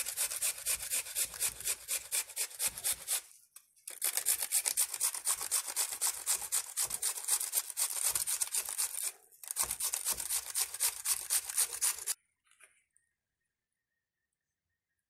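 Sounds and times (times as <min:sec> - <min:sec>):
potato grating on metal grater: 0:00.0 - 0:03.3, 0:03.9 - 0:12.2.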